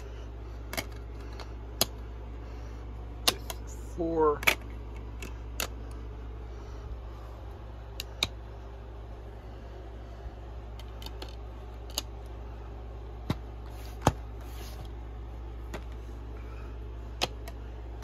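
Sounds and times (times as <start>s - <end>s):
low hum: 0.0s - 18.0s.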